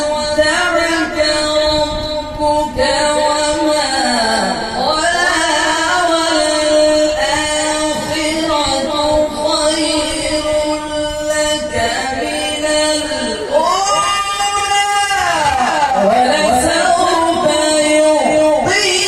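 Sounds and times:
man reciting melodically: 0:00.0 - 0:19.0.

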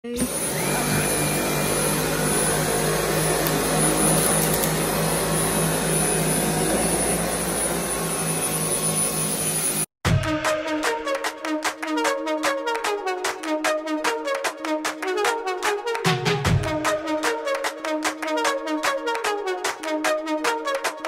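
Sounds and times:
vacuum cleaner running over carpet: 0:00.1 - 0:09.9.

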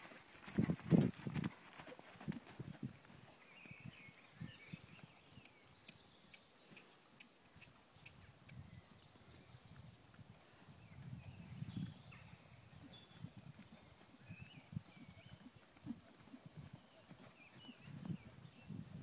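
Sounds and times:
horse hooves thudding on sand: 0:00.0 - 0:04.0.

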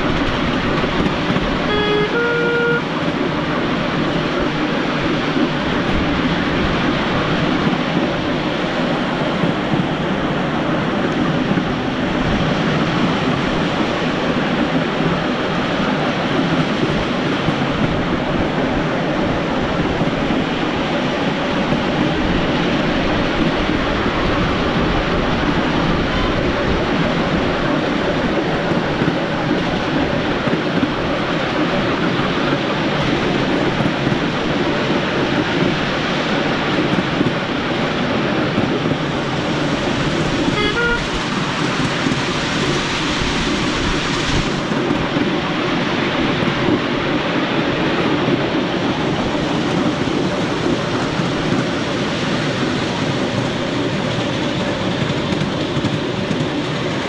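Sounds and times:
train whistle toot: 0:01.6 - 0:02.9, 0:40.5 - 0:41.2.

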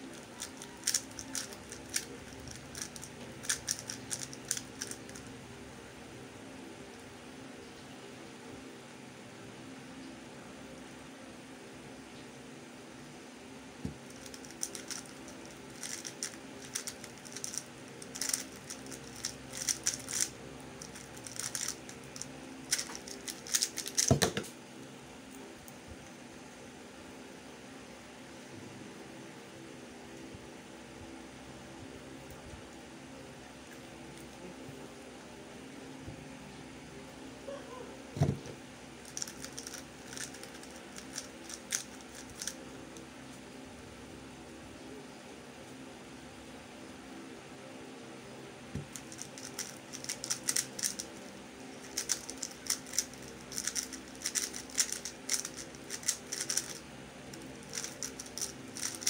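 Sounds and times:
electric fan hum: 0:00.0 - 0:59.0
plastic puzzle cube clicking: 0:00.1 - 0:05.2, 0:14.1 - 0:15.1, 0:15.8 - 0:24.4, 0:39.1 - 0:42.6, 0:48.9 - 0:51.1, 0:51.8 - 0:56.8, 0:57.6 - 0:59.0
thump: 0:38.2 - 0:38.6.

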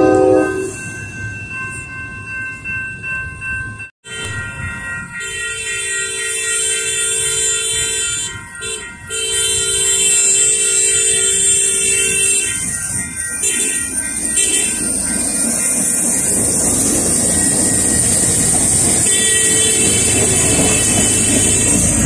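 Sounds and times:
train air horn blasts: 0:00.0 - 0:00.8, 0:05.2 - 0:12.6, 0:19.0 - 0:22.0.

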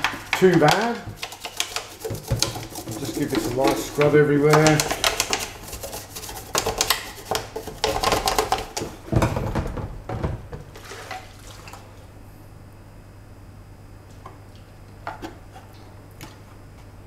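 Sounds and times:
toothbrush scrubbing plastic: 0:00.0 - 0:08.9
water splashing: 0:10.7 - 0:12.0.

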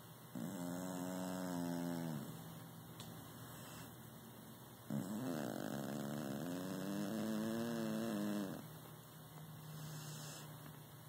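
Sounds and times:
cat snoring: 0:00.3 - 0:02.4, 0:04.9 - 0:08.7, 0:09.7 - 0:10.5.

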